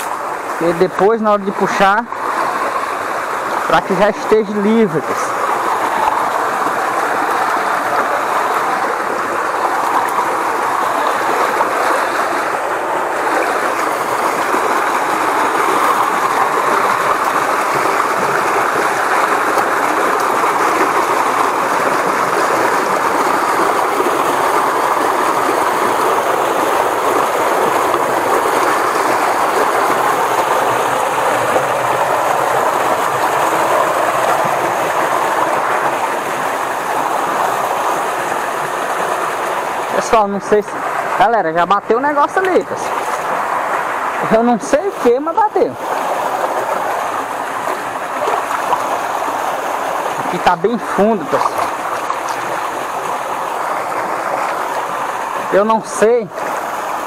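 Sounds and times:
stream rushing over cascade: 0:00.0 - 0:57.0.

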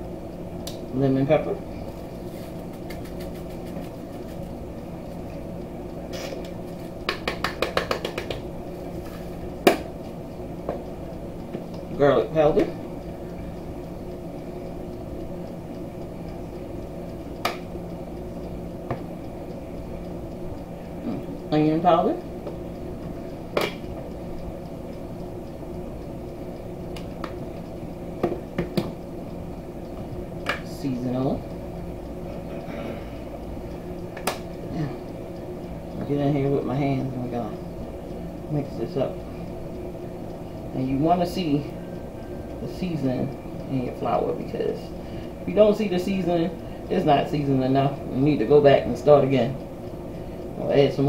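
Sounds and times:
steady low hum: 0:00.0 - 0:51.0
spice shaker rattling: 0:02.6 - 0:04.5
shaker cap clicking open: 0:02.7 - 0:04.4.

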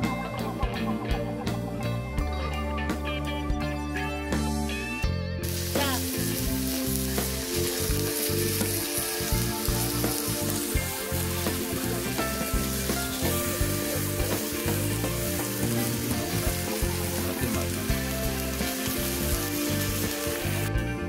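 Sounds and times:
meat sizzling on a grill: 0:05.4 - 0:20.7.

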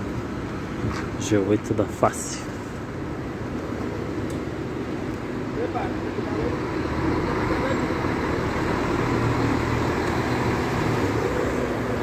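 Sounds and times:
diesel coach engine: 0:00.0 - 0:12.0.

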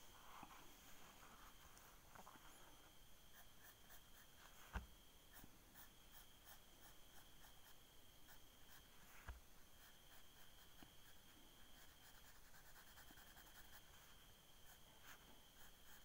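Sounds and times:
pencil scratching on paper: 0:03.3 - 0:16.0.

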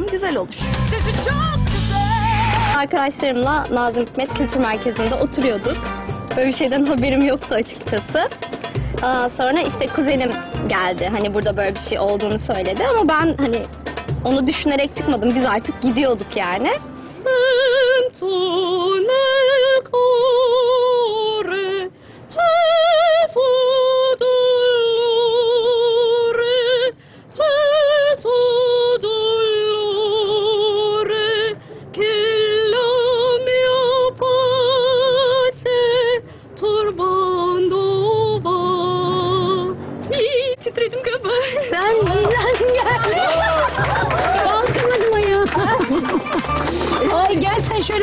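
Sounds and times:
singer breathing: 0:21.9 - 0:22.3, 0:27.0 - 0:27.3, 0:31.6 - 0:31.9, 0:36.2 - 0:36.6.

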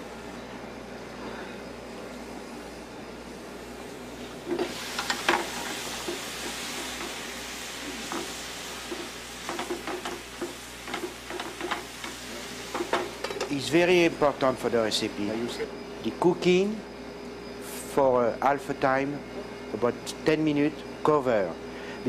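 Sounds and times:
onions sizzling in a pan: 0:04.2 - 0:13.4.

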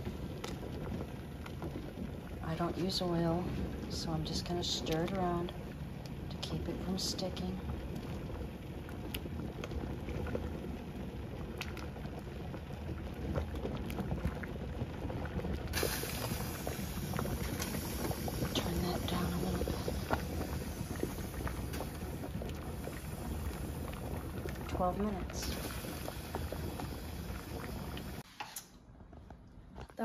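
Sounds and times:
water boiling with small pops: 0:00.0 - 0:30.0
bright hiss: 0:15.8 - 0:20.0.

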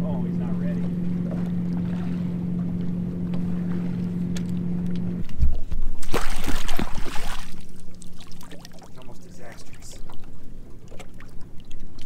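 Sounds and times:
boat motor humming: 0:00.0 - 0:12.0
loud splashing: 0:06.0 - 0:09.0.

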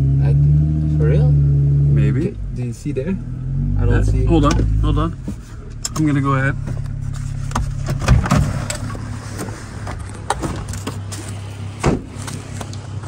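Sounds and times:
car engine idling: 0:00.0 - 0:13.0
heavy thump: 0:11.8 - 0:12.2.

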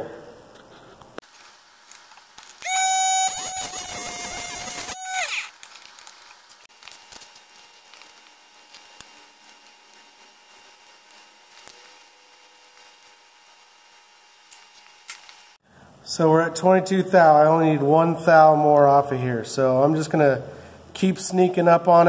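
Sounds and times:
grinder wheel whining: 0:01.9 - 0:06.6.

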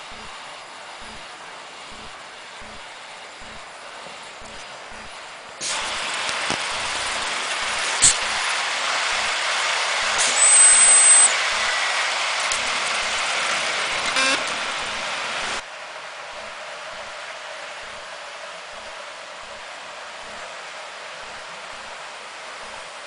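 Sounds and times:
steam hissing: 0:00.0 - 0:15.6
thin high whistling tone: 0:10.1 - 0:11.4.

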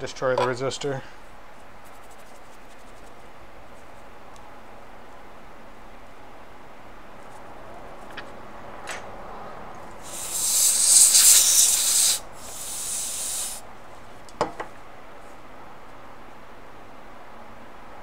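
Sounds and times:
pressurized spray hissing: 0:10.0 - 0:13.6.

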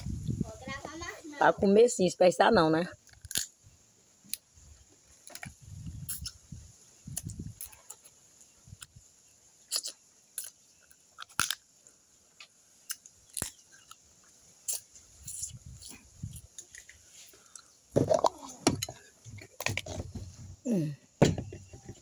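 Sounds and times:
crab shell cracking: 0:03.0 - 0:03.5, 0:11.2 - 0:11.6
chewing: 0:12.4 - 0:18.6.

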